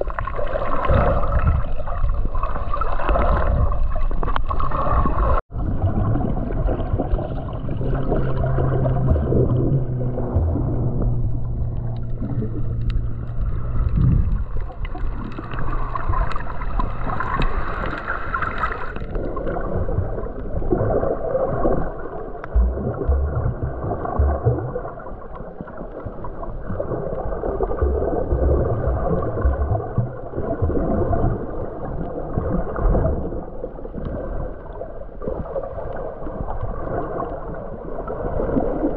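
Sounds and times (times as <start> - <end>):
underwater sloshing and gurgling: 0.0 - 38.9
steady low hum: 5.8 - 17.4, 22.5 - 25.0, 27.7 - 30.8.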